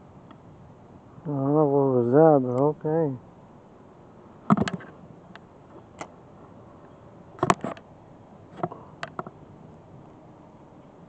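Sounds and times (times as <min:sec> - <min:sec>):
handling clicks and knocks: 0:04.5 - 0:04.9, 0:07.4 - 0:07.9, 0:08.6 - 0:09.4.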